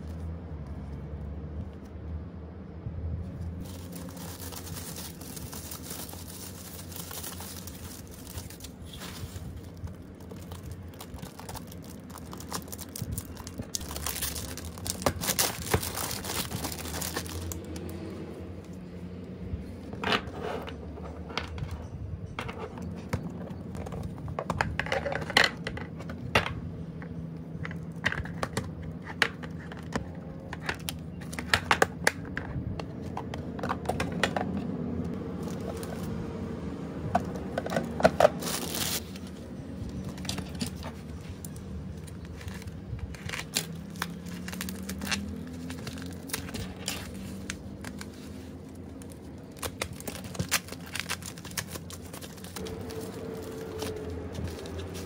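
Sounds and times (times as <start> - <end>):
plastic packaging crinkling: 3.6 - 18.0, 37.2 - 39.3, 39.9 - 55.0.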